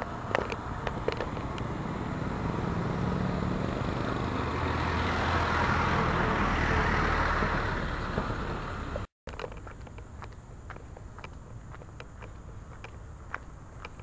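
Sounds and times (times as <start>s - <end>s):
road and tyre noise: 0.0s - 14.0s
vehicle engine hum: 0.0s - 14.0s.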